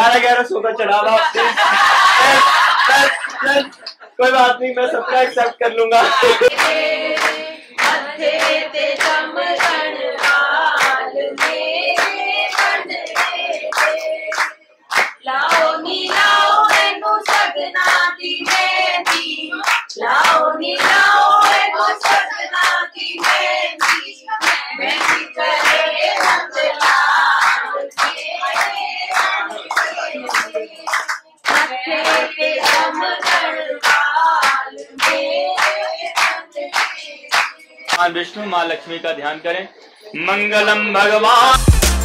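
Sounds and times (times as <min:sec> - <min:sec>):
group singing devotional song: 0:00.0 - 0:41.6
hands clapping on the beat: 0:01.6 - 0:04.4, 0:05.4 - 0:38.1, 0:41.5 - 0:42.0.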